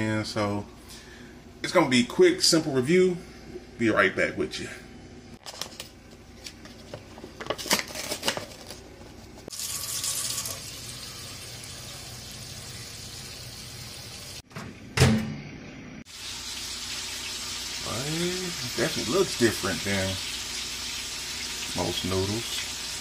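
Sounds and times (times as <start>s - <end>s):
water running into metal sink: 9.5s - 14.4s.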